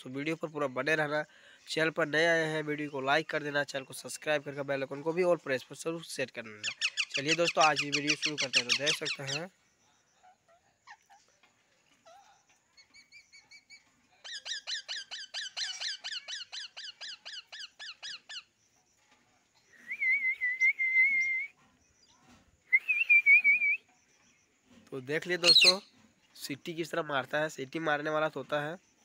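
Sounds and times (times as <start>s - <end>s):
parakeet chirping and squeaking: 6.6s - 9.5s, 12.8s - 18.5s, 25.4s - 25.9s
parakeet warbling whistle: 25.4s - 25.8s.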